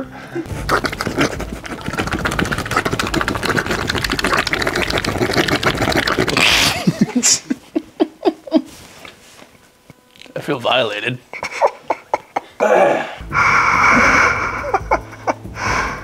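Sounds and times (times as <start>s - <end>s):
man making fluttering mouth buzz: 0.5s - 7.5s
laughter: 6.6s - 8.7s, 11.3s - 12.6s, 13.9s - 15.4s.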